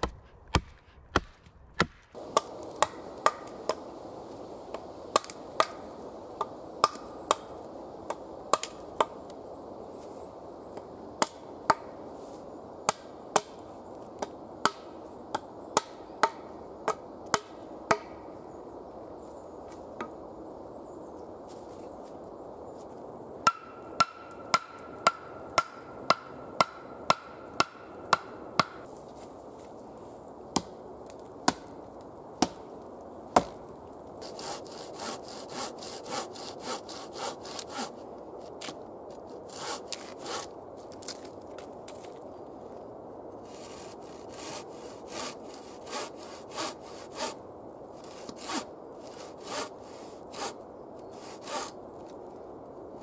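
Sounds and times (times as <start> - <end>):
blade shaving wood: 34.2 - 38.0, 39.4 - 40.5, 43.4 - 47.4, 48.0 - 51.8.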